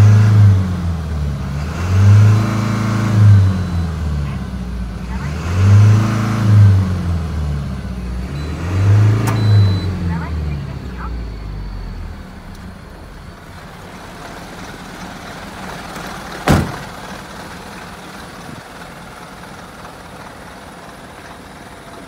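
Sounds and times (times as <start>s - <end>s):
truck diesel engine idling: 0.0s - 22.0s
loud short bang: 16.4s - 17.0s.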